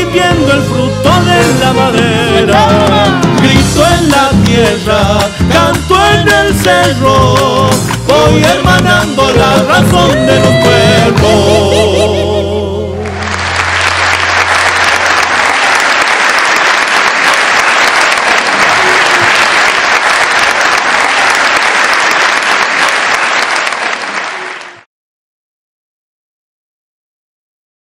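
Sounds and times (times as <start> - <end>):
guitars and violin playing: 0.0 - 13.2
audience applause: 13.0 - 24.9.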